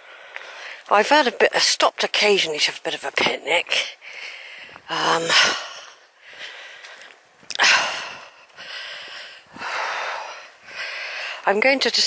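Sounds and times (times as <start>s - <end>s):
person breathing hard: 0.0s - 0.9s, 4.0s - 11.5s.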